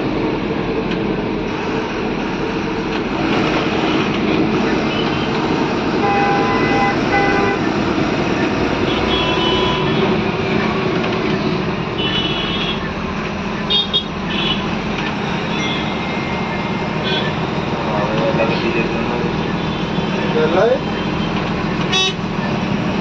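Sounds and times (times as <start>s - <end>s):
bus engine and road noise: 0.0s - 23.0s
vehicle horns: 3.7s - 7.8s, 8.7s - 10.3s, 12.0s - 12.9s, 13.7s - 17.6s, 18.6s - 22.2s.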